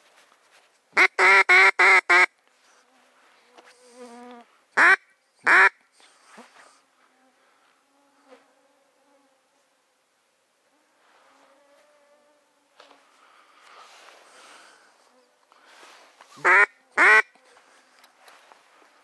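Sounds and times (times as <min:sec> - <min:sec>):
duck quacks: 0:04.8 - 0:05.8, 0:16.4 - 0:17.3.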